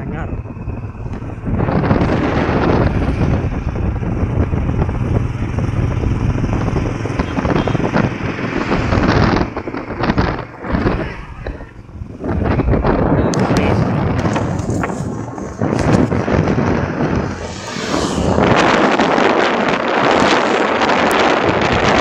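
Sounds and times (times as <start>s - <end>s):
vehicle road noise: 0.0s - 22.0s
wind buffeting microphone: 0.0s - 22.0s.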